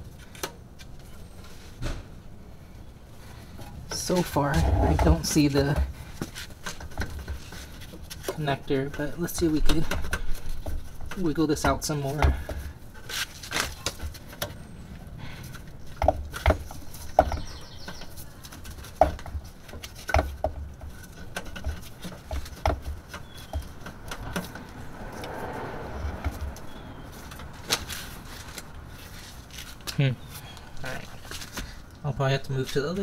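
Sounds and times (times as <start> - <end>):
soft rustle: 20.8 - 31.9.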